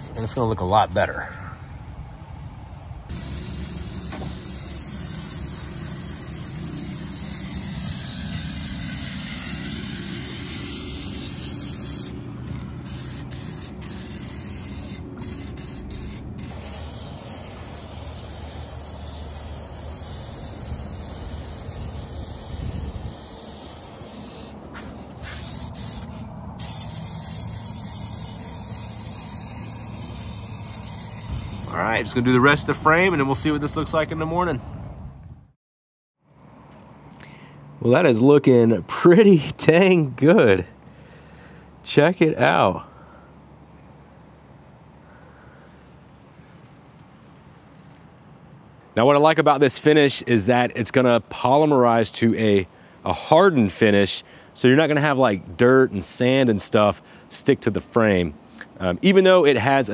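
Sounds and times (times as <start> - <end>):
aerosol spray can hissing: 3.1 - 12.2, 12.8 - 24.6, 25.2 - 31.8.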